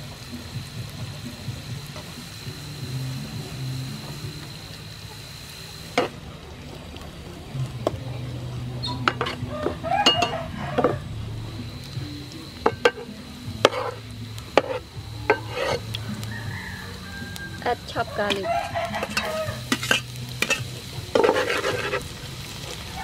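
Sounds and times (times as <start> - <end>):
food sizzling in oil: 0.0 - 23.0
metal spatula clinking on pan: 10.0 - 11.0, 18.3 - 22.0.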